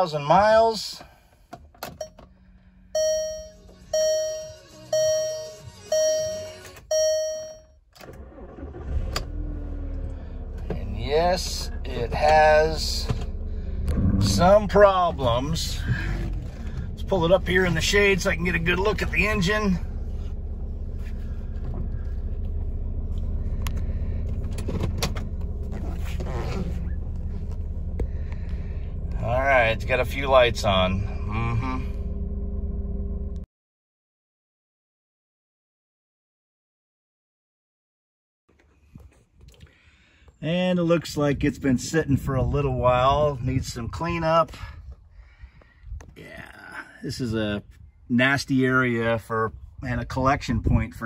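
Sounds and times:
car warning chime: 0:02.0 - 0:02.3, 0:03.0 - 0:08.7
car engine idling: 0:08.1 - 0:33.4.

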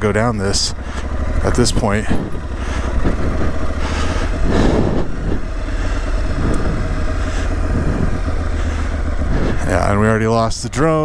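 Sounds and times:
motorcycle engine at low revs: 0:00.0 - 0:11.0.

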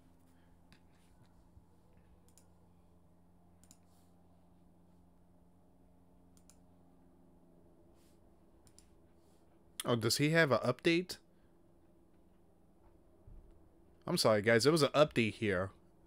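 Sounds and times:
computer clicks: 0:02.3 - 0:02.5, 0:03.6 - 0:03.9, 0:06.4 - 0:06.6, 0:08.6 - 0:08.9.

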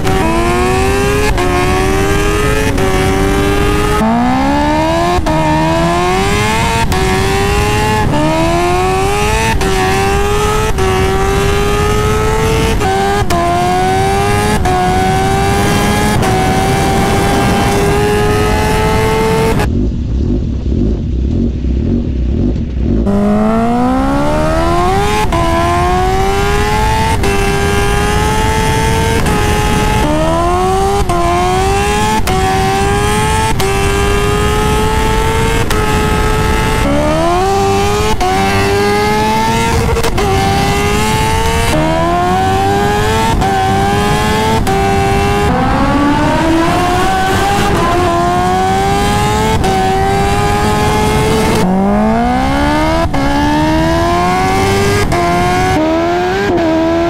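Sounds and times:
motorcycle engine accelerating: 0:00.0 - 0:57.0
low engine rumble: 0:19.6 - 0:24.3.

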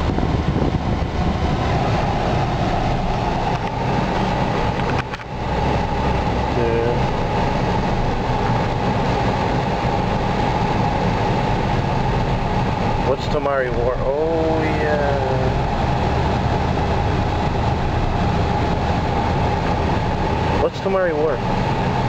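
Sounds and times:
car engine and road rumble: 0:00.0 - 0:22.0
steady hum: 0:00.0 - 0:22.0.

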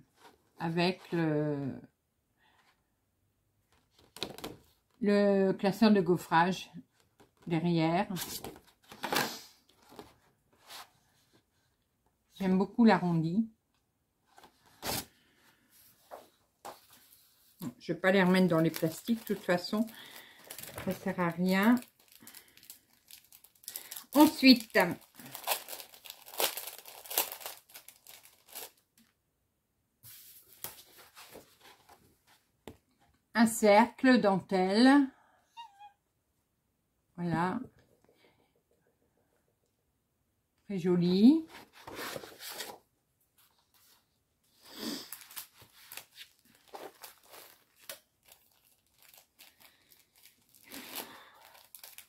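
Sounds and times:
plastic packaging crinkling: 0:18.1 - 0:29.1, 0:45.0 - 0:52.0.

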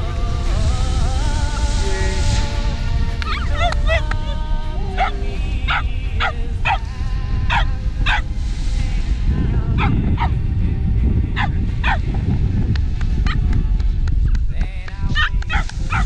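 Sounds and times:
background music: 0:00.0 - 0:16.0
steady low rumble: 0:00.0 - 0:16.0
dog barking: 0:03.3 - 0:04.0, 0:05.0 - 0:06.8, 0:07.5 - 0:08.2, 0:09.8 - 0:10.4, 0:11.4 - 0:12.0, 0:15.2 - 0:16.0.

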